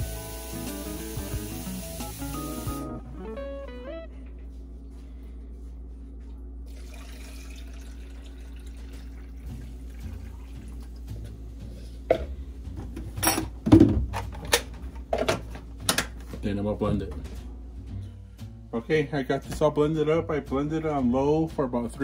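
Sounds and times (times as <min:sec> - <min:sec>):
water pouring into blender jar: 0:06.7 - 0:11.0.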